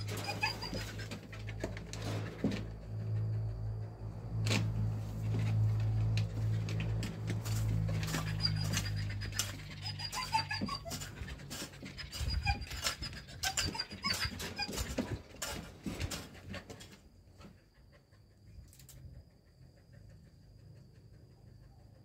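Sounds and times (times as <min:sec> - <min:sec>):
hoe scraping into soil: 0:07.3 - 0:16.5.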